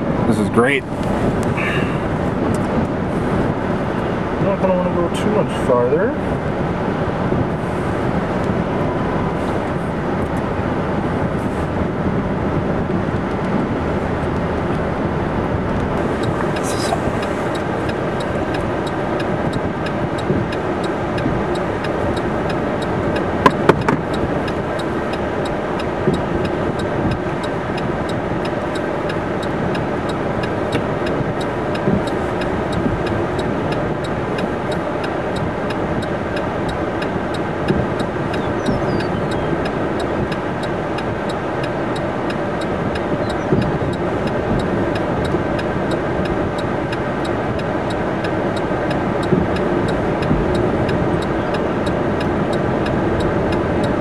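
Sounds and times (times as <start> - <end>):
vehicle engine hum: 0.0 - 54.0
faint regular ticking: 15.9 - 54.0.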